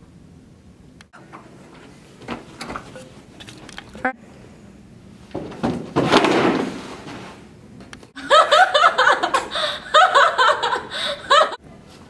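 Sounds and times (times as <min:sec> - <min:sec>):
young woman laughing hard: 0:08.2 - 0:11.6.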